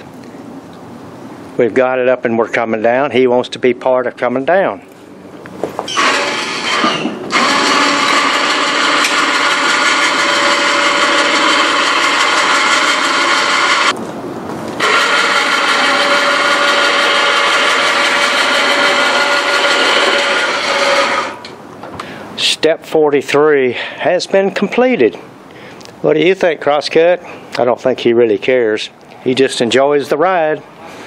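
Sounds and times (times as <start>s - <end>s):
electric winch motor whining: 5.9s - 14.0s, 14.8s - 21.6s.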